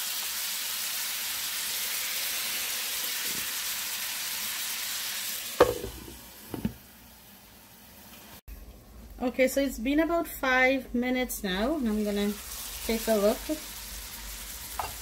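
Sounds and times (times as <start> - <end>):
food sizzling in a pan: 0.0 - 8.7, 11.8 - 15.0
glass lid knocking on pan: 5.6 - 6.7.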